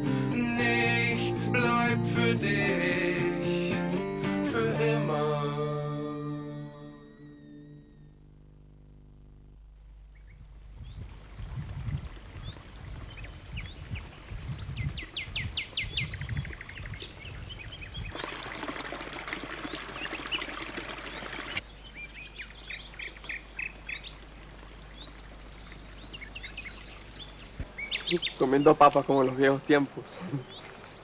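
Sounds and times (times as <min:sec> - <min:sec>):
small birds chirping: 0:10.1 - 0:11.1, 0:12.4 - 0:18.2, 0:19.5 - 0:31.0
fountain water splashing: 0:18.0 - 0:21.6, 0:22.4 - 0:31.0.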